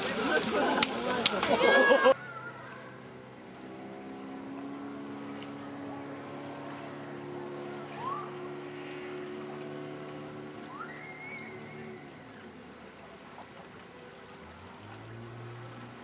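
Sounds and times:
distant motorboat engine: 0:00.0 - 0:16.0
rising call: 0:10.6 - 0:12.5.

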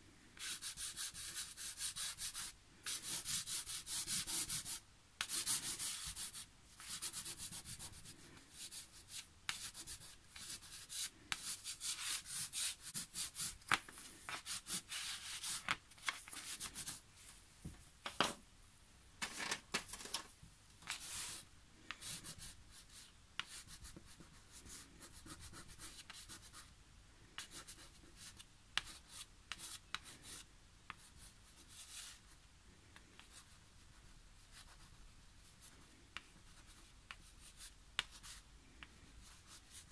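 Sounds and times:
crayon scratching on paper: 0:00.4 - 0:17.0, 0:20.9 - 0:26.6.

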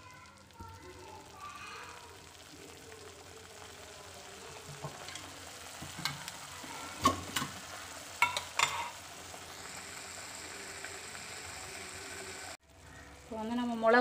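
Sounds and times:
paste sizzling in oil: 0:00.0 - 0:14.0
spatula stirring: 0:04.6 - 0:09.1.

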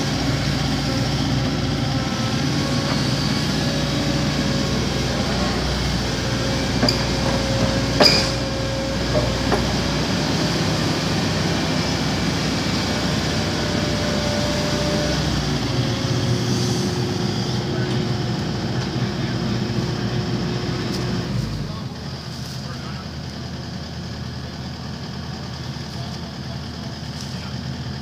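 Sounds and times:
excavator diesel engine running: 0:00.0 - 0:28.0
knocks of excavator digging: 0:06.2 - 0:10.1.

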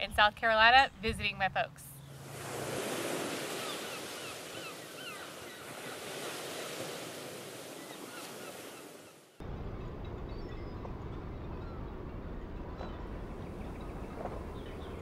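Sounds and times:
ocean surf washing: 0:02.2 - 0:10.2
short bird calls: 0:03.4 - 0:06.0.

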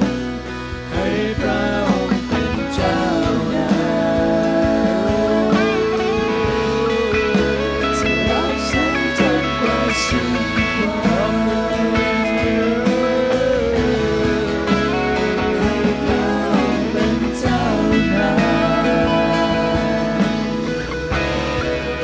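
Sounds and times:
acoustic guitar: 0:00.0 - 0:22.0
drums: 0:00.0 - 0:22.0
keyboard: 0:00.0 - 0:22.0
person singing: 0:00.8 - 0:22.0.

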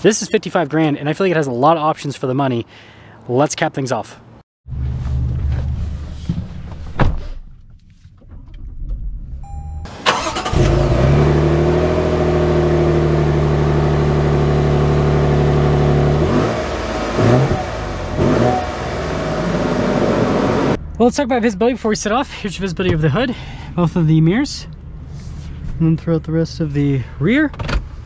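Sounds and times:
car engine cranking and idling: 0:07.4 - 0:28.0.

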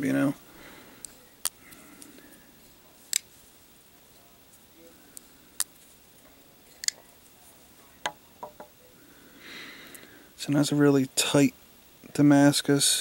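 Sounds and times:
knives knocking on wooden board: 0:08.4 - 0:08.7.

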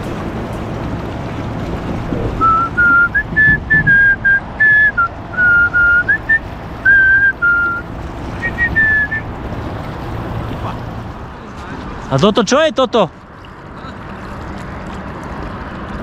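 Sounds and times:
person whistling a tune: 0:02.4 - 0:07.8, 0:08.4 - 0:09.2.

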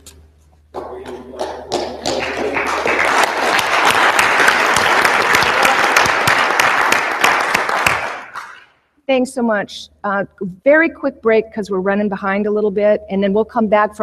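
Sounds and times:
audience applauding: 0:00.8 - 0:08.7.

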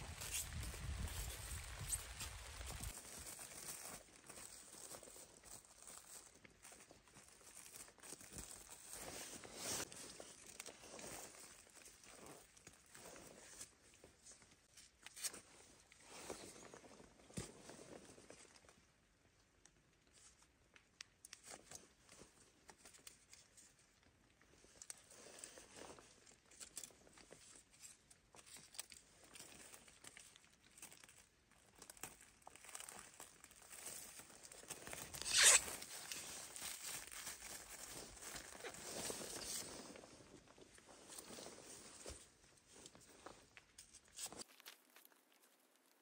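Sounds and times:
plastic film crinkling: 0:00.0 - 0:12.8, 0:28.5 - 0:40.0, 0:43.0 - 0:46.0
loud tape rip: 0:35.1 - 0:35.9.

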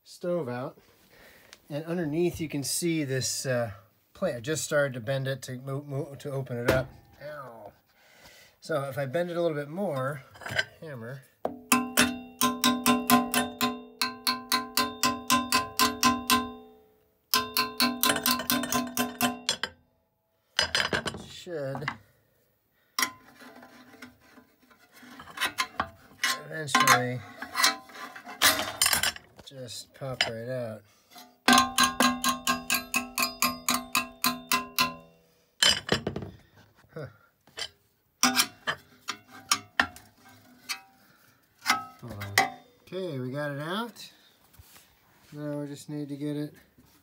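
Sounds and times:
hammer striking steel plate: 0:11.5 - 0:19.7, 0:31.5 - 0:35.2
steel stove body ringing: 0:11.5 - 0:19.8, 0:23.0 - 0:23.2, 0:31.4 - 0:36.0, 0:41.6 - 0:42.7
metal clatter: 0:17.3 - 0:19.8, 0:25.2 - 0:29.4, 0:31.4 - 0:36.2.

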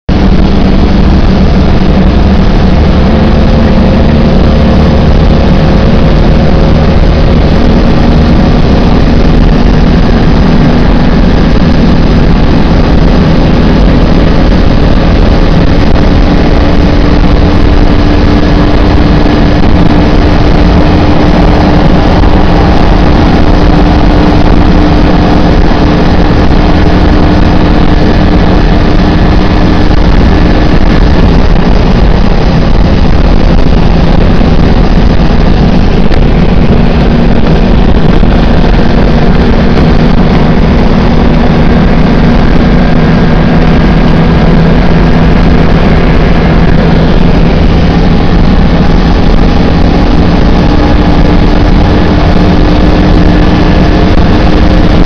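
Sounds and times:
car engine droning: 0:00.0 - 0:55.0.

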